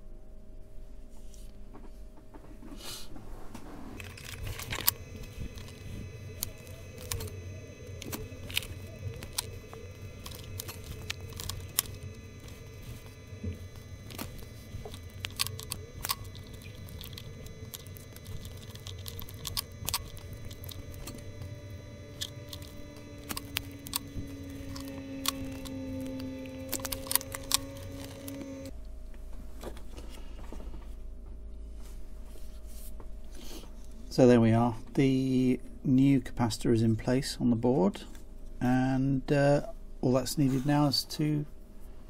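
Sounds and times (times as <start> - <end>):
steady low hum: 0.0 - 42.0
side cutters snipping wire: 4.0 - 28.7.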